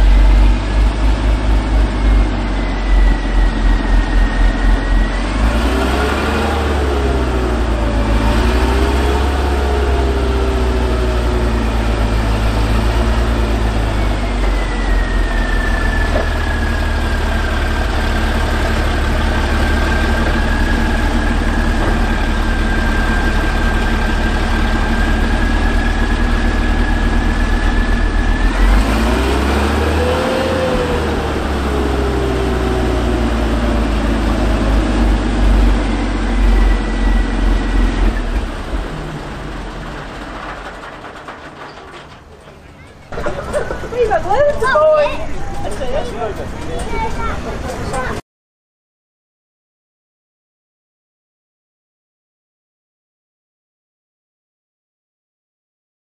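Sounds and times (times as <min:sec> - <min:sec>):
steady high whine: 0:00.0 - 0:06.0
tractor engine running: 0:00.0 - 0:48.2.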